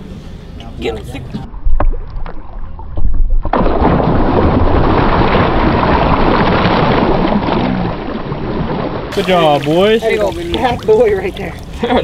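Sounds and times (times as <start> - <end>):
fish thrashing and splashing water: 3.4 - 12.0.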